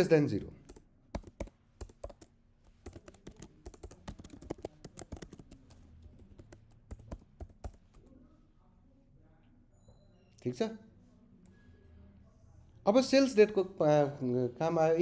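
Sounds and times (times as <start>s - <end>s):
typing on computer keyboard: 0.6s - 8.1s.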